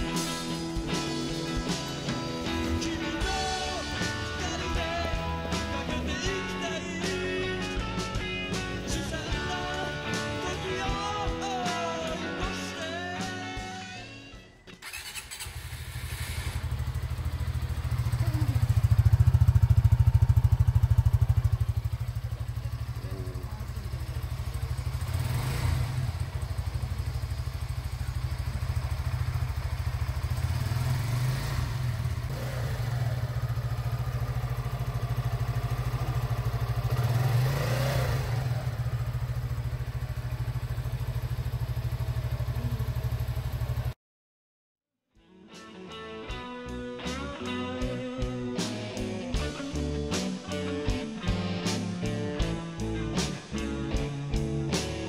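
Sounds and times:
motorcycle engine idling: 0:00.0 - 0:11.6, 0:14.8 - 0:44.0
rock song with singing: 0:00.0 - 0:14.8, 0:45.4 - 0:55.0.

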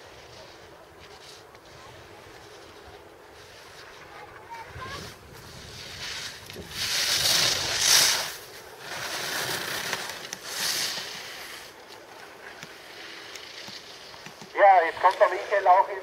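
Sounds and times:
skis scraping across snow: 0:00.0 - 0:16.0.

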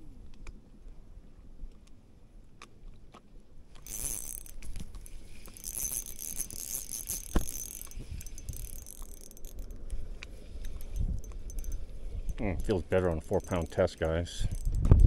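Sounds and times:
fishing reel spool whirring: 0:03.8 - 0:14.8
fishing reel ticking: 0:03.8 - 0:15.0.

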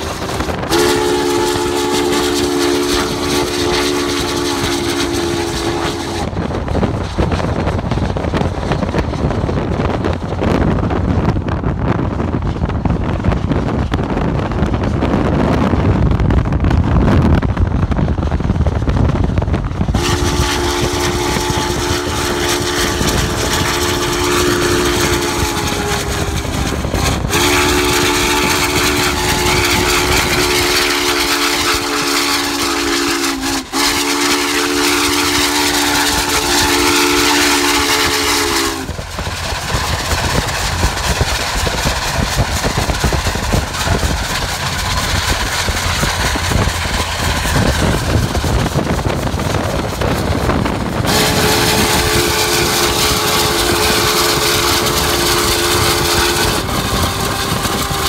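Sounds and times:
steam locomotive chime whistle: 0:00.0 - 0:06.3, 0:19.9 - 0:39.0, 0:51.0 - 0:58.0
wind: 0:00.0 - 0:58.0.

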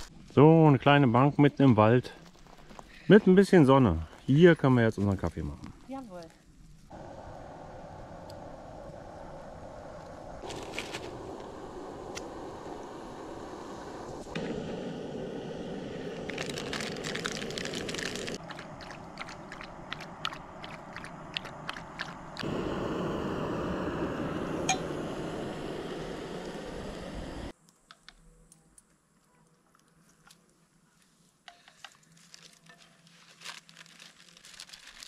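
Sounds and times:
steady rushing noise: 0:06.9 - 0:27.5
paper wrapper crunching: 0:16.1 - 0:19.4, 0:31.9 - 0:35.0.

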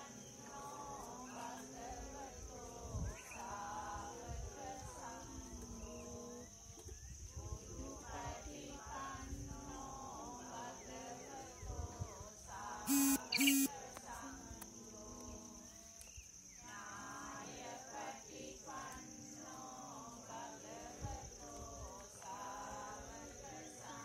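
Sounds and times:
insects droning: 0:00.0 - 0:24.0
loud flat honks: 0:12.9 - 0:13.7.

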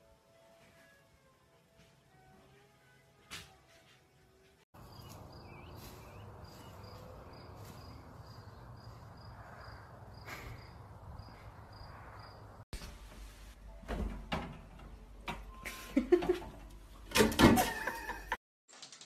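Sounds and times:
insect chirping: 0:06.4 - 0:12.6.

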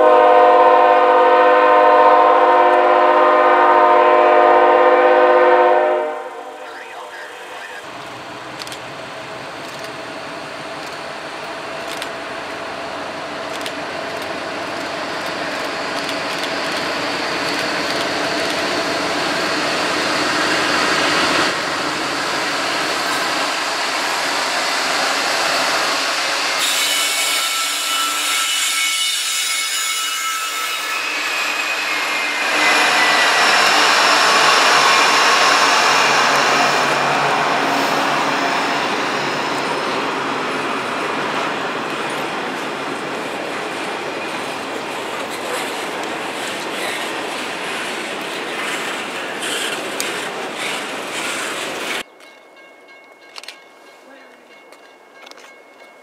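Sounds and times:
diesel locomotives passing: 0:00.0 - 0:55.4
wheels rolling on rails: 0:39.6 - 0:52.4.

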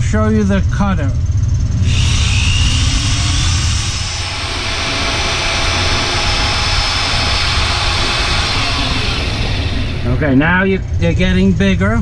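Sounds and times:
electric drill cutting steel: 0:01.8 - 0:10.4
high drill whine: 0:01.8 - 0:10.7.

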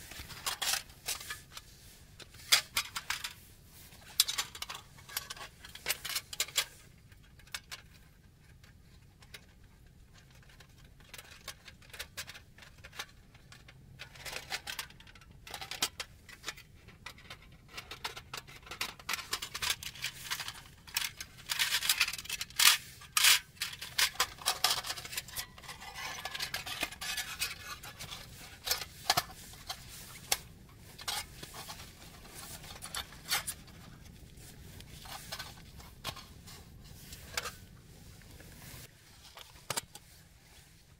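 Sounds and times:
metal stove parts clinking: 0:18.8 - 0:33.8.

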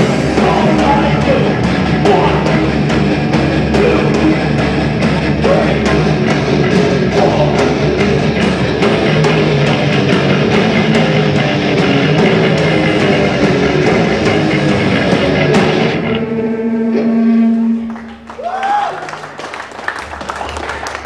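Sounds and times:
drum kit beat: 0:00.0 - 0:16.2
distorted electric guitars: 0:00.0 - 0:18.4.

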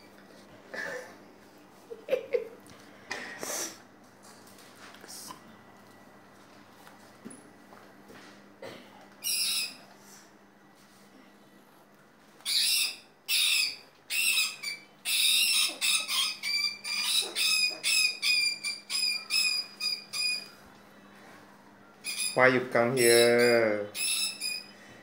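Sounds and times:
rat squealing: 0:09.2 - 0:09.9, 0:12.4 - 0:20.6, 0:22.0 - 0:24.8.

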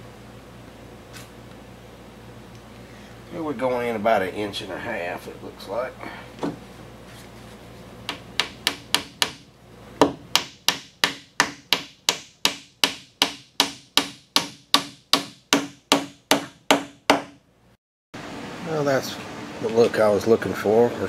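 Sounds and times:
hammer tapping wooden dowel: 0:08.1 - 0:17.4.

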